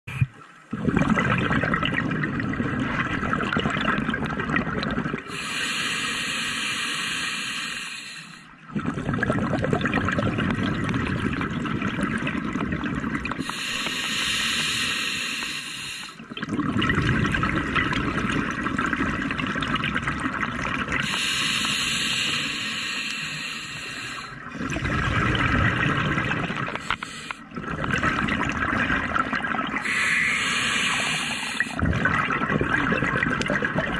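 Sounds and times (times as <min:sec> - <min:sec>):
bubbling exhale: 0:00.1 - 0:19.8, 0:20.6 - 0:33.9
hissing regulator inhale: 0:05.3 - 0:08.5, 0:13.4 - 0:16.2, 0:21.0 - 0:24.5, 0:26.7 - 0:27.5, 0:29.8 - 0:31.8.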